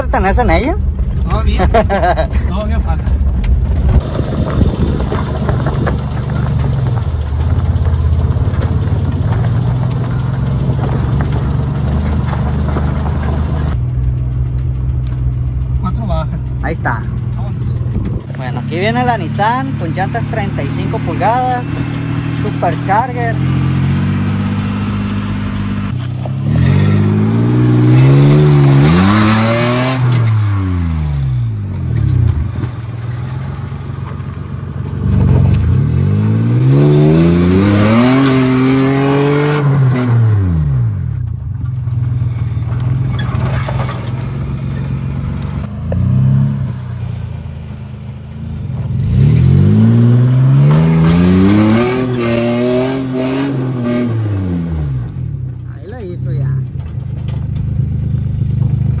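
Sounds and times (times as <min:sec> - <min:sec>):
truck engine revving: 0:00.0 - 0:59.0
tyres spinning on gravel: 0:00.1 - 0:29.3, 0:41.2 - 0:46.3.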